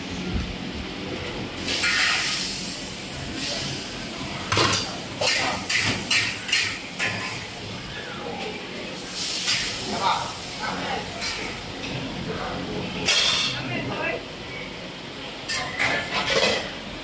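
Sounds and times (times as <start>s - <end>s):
wok sizzling: 1.5s - 11.8s.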